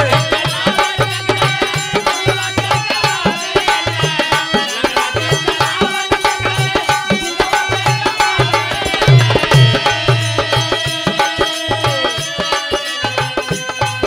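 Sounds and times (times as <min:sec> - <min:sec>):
hand drums fast beat: 0:00.0 - 0:14.0
melodic instrument line: 0:06.7 - 0:12.5.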